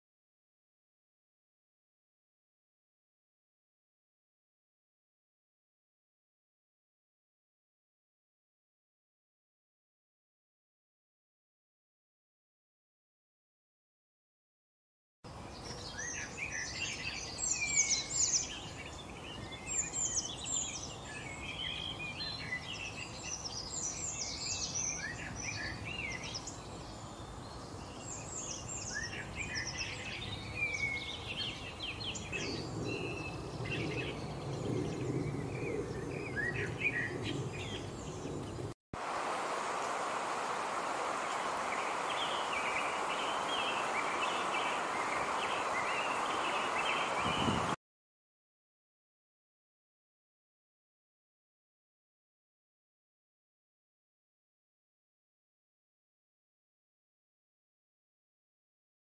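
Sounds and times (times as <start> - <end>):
songbirds chirping: 15.3 - 47.8
outdoor hiss: 39.0 - 47.8.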